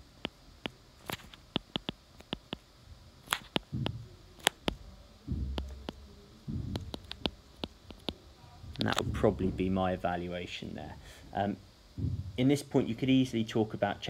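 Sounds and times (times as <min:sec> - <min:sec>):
stylus tapping on tablet screen: 0:00.2 - 0:02.6, 0:03.3 - 0:09.0.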